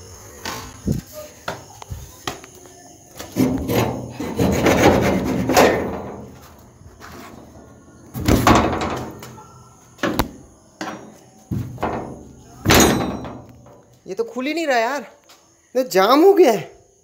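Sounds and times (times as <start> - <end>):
wooden door scraping and rattling: 3.3 - 9.4, 10.0 - 13.8.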